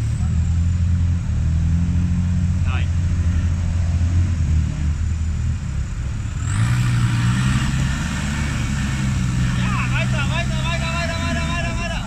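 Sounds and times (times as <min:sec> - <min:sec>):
buggy engine revving under load: 0:00.0 - 0:12.0.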